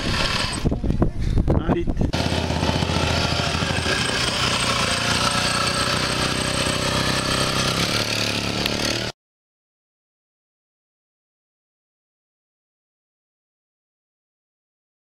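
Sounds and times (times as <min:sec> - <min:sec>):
motorcycle engine running: 0:00.0 - 0:00.9, 0:02.1 - 0:09.2.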